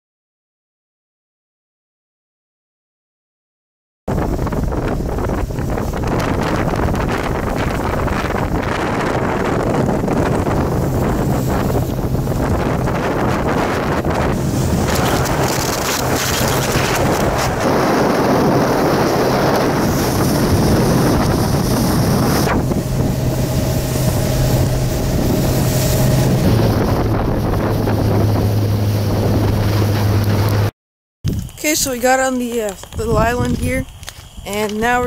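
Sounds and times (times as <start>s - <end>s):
water rushing past hull: 4.1s - 30.7s
wind buffeting microphone: 4.1s - 35.0s
outboard motor running: 4.2s - 30.7s.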